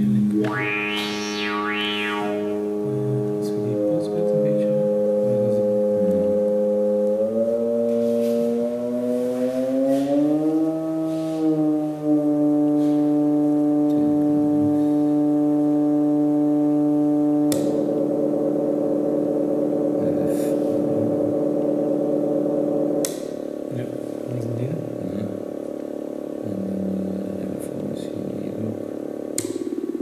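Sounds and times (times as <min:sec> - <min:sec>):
synthesizer buzzy drone: 0:00.2 - 0:03.5
click: 0:29.4 - 0:29.6.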